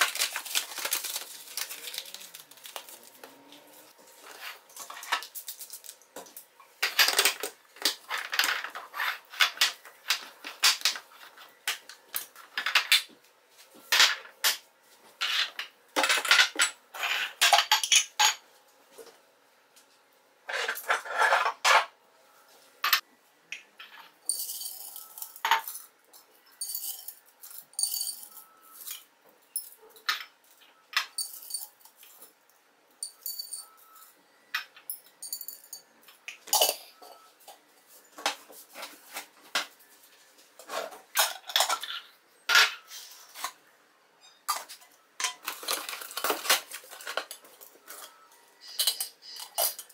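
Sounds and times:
glass jars clinking on stone: 23.8 - 25.8, 26.5 - 29.0, 31.0 - 31.8, 33.0 - 33.8, 34.7 - 35.9, 36.5 - 37.3, 47.0 - 49.9.

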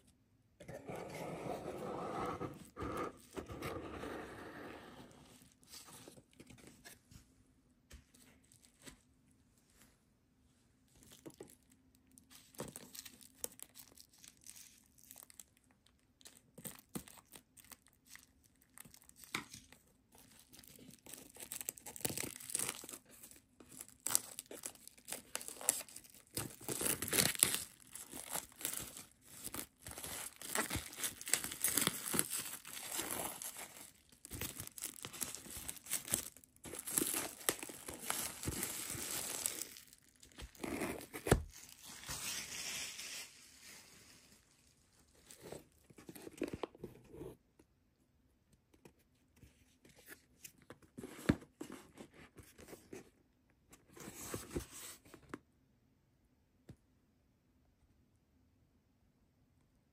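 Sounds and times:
packaging torn and crinkled: 12.4 - 42.0.

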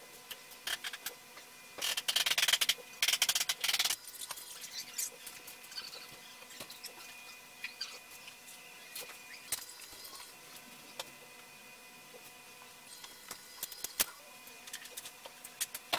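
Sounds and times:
faint motor whine: 0.0 - 15.9
robot arm motors clicking: 1.8 - 7.0.

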